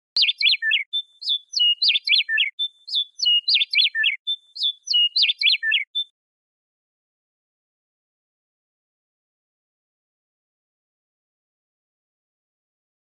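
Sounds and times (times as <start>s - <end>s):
meadowlark singing: 0.1s - 6.1s.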